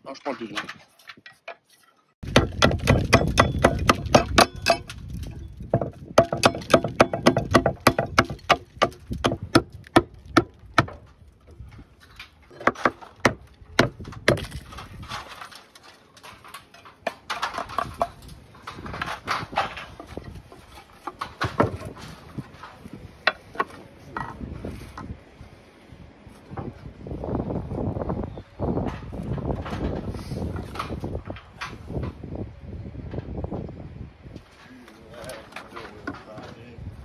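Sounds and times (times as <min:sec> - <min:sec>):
hammer chopping slate: 0:02.2 - 0:04.9, 0:05.8 - 0:11.0.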